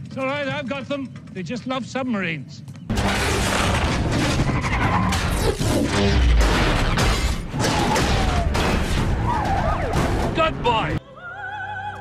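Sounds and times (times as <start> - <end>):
cars crashing and scraping metal: 2.9 - 10.9.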